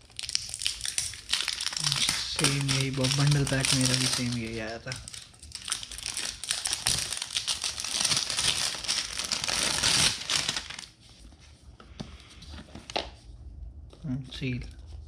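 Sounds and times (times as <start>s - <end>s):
packaging crinkling and rustling: 0.0s - 11.1s.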